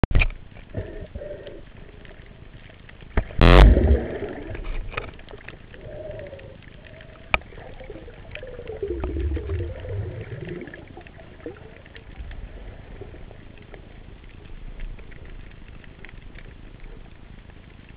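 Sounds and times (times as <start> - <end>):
underwater clicks and crackles: 0.0 - 17.9.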